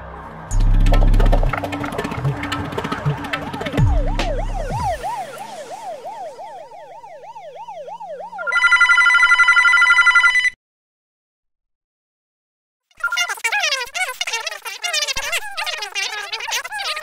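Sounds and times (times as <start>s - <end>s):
police siren wailing: 0.5s - 10.1s
telephone bell ringing: 8.4s - 10.6s.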